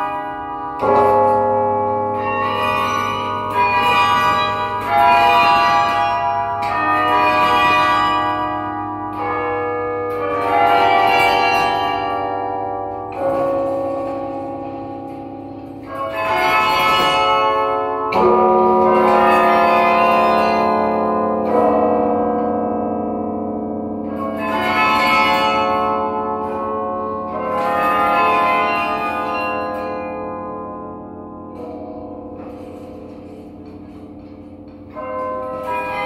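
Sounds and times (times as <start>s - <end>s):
carillon bells ringing: 0.0s - 36.0s
low bell ringing: 0.0s - 36.0s.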